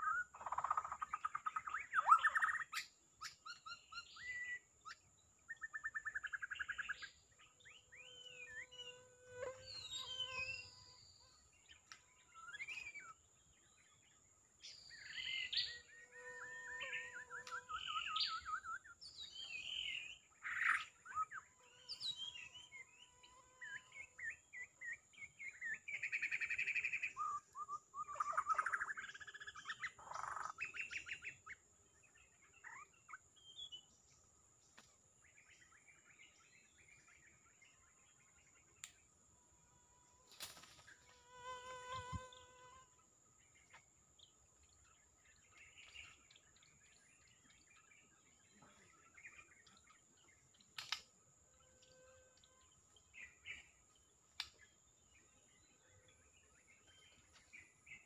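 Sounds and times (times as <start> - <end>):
bird singing whistles and trills: 0.0 - 9.0, 12.4 - 13.2, 14.6 - 33.9.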